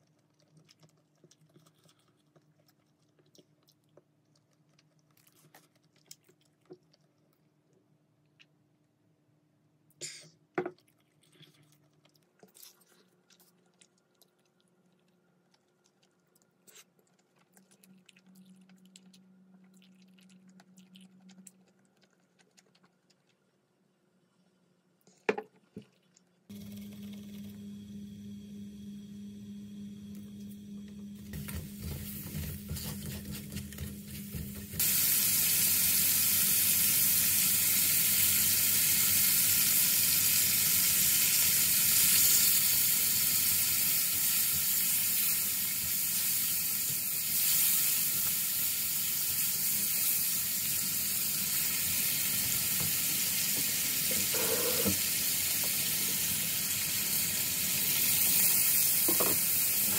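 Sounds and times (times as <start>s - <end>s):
low steady hum: 25.9s - 34.8s
meat sizzling in a wok: 34.8s - 59.9s.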